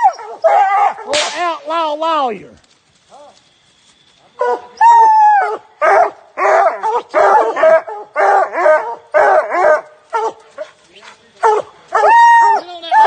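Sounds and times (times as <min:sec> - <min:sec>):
hound baying: 0:00.0 - 0:01.1, 0:04.4 - 0:10.8, 0:11.4 - 0:13.0
dog barking: 0:00.0 - 0:01.2, 0:04.4 - 0:04.8, 0:05.4 - 0:10.8, 0:11.4 - 0:12.2.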